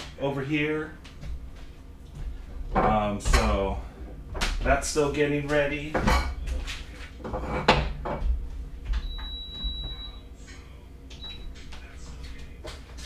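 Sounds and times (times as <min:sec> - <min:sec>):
rice cooker beeping: 0:09.0 - 0:10.2.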